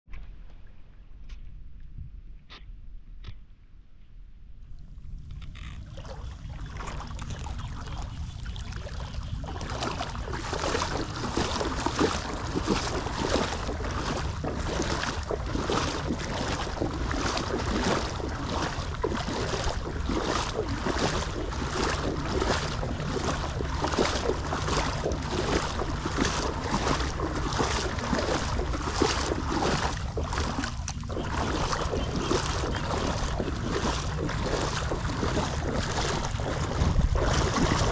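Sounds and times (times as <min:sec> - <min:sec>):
wind rumble on microphone: 0:04.6 - 0:37.9
wading splashes in floodwater: 0:05.4 - 0:37.9.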